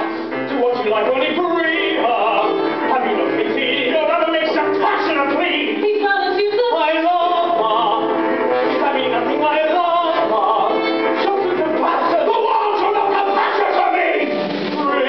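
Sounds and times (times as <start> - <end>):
person singing: 0.5 - 15.0
orchestra chords: 7.1 - 15.0.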